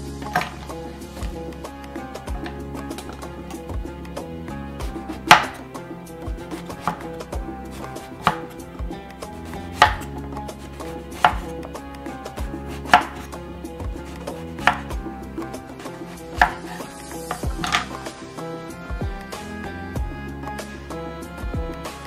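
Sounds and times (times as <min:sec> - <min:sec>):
knife knocking on cutting board: 0:04.8 - 0:05.6, 0:06.5 - 0:08.6, 0:09.8 - 0:10.1, 0:11.2 - 0:11.7, 0:12.8 - 0:13.3, 0:14.1 - 0:15.0, 0:16.4 - 0:18.0.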